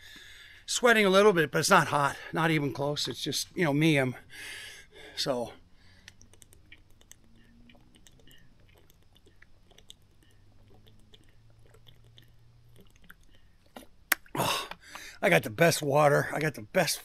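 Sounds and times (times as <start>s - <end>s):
mouth and bottle clicks: 6.0s - 15.1s
man gulping and swallowing: 6.1s - 15.1s.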